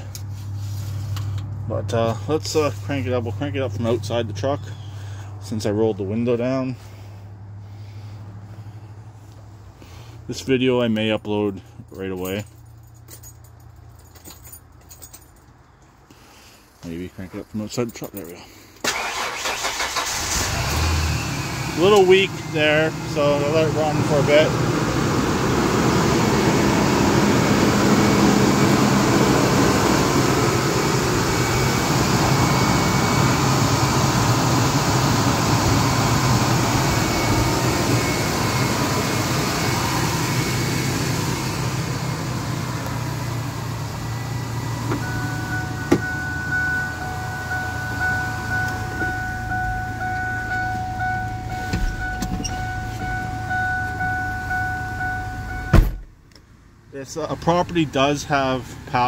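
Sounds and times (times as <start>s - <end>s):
truck engine idling: 0.0s - 13.2s, 18.4s - 56.1s
steady high tone: 21.6s - 42.4s, 43.5s - 55.8s.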